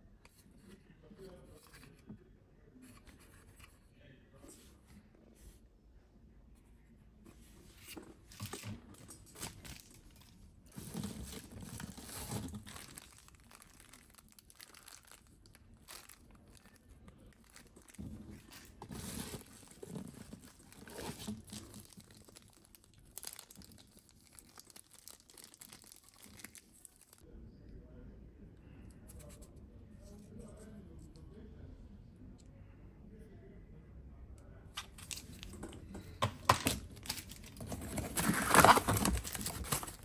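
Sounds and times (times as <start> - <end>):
plastic packaging crinkling: 8.5 - 27.2, 36.5 - 40.0.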